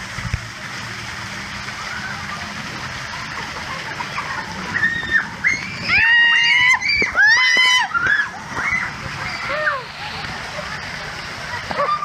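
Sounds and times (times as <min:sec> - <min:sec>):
water sloshing and splashing: 0:00.0 - 0:12.0
children shrieking: 0:04.2 - 0:10.7, 0:11.6 - 0:12.0.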